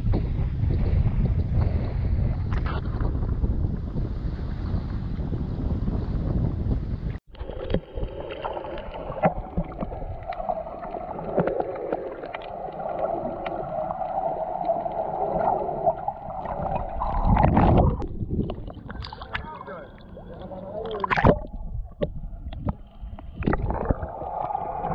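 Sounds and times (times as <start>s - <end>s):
wind noise on microphone: 0.0s - 7.2s, 16.5s - 19.4s, 21.1s - 24.9s
water rushing: 7.4s - 24.9s.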